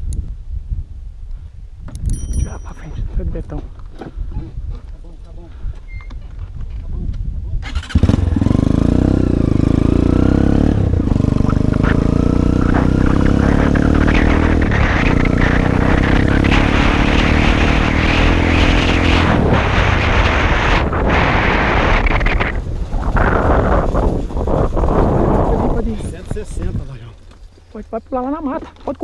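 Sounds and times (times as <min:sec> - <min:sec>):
dirt bike engine accelerating: 0:07.6 - 0:27.7.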